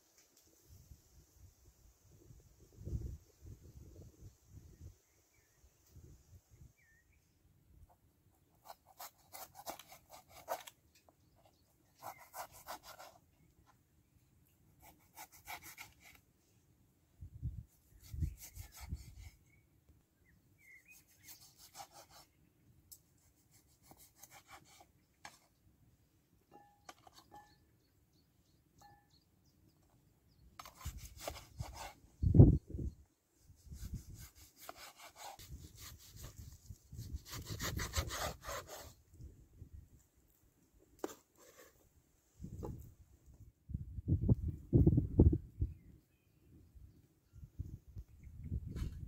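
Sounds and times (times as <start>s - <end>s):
knife sawing through meat: 33.8s - 36.4s.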